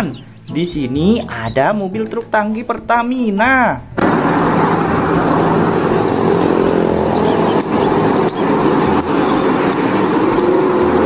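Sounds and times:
vehicle engine running: 0:04.0 - 0:11.0.

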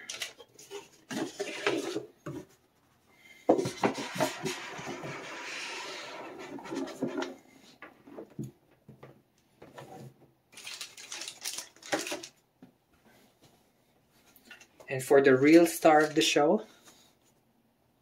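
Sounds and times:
objects scraping and tapping on table: 0:03.5 - 0:08.4
plastic bag rustling: 0:10.5 - 0:12.4.

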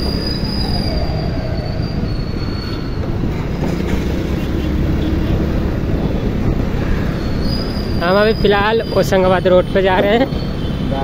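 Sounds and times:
scooter road noise: 0:00.0 - 0:11.0
wind noise on microphone: 0:05.3 - 0:09.0.

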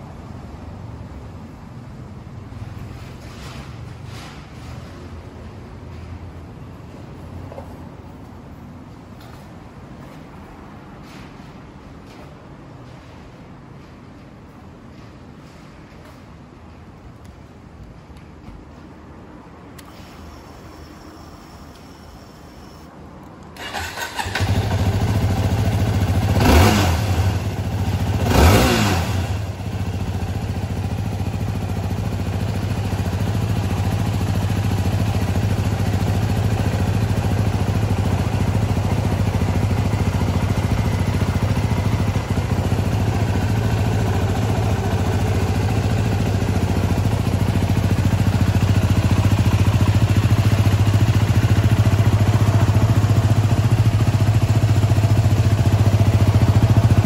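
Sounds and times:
motorcycle engine revving and idling: 0:23.6 - 0:57.0.

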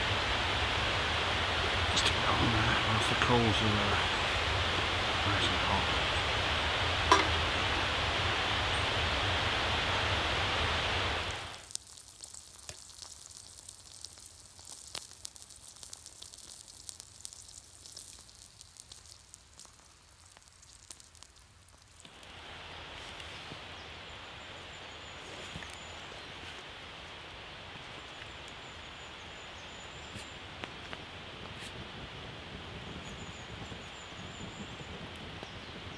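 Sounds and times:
snails sizzling and crackling: 0:00.0 - 0:23.3
outdoor hiss: 0:00.0 - 0:35.9.

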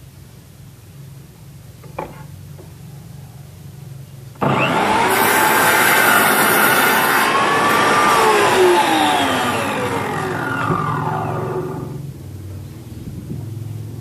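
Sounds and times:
mitre saw motor whining: 0:04.4 - 0:12.1.

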